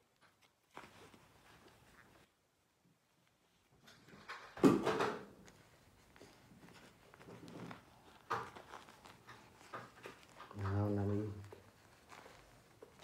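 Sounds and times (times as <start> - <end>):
diaper rustling and crinkling: 0.0 - 2.4, 3.1 - 13.0.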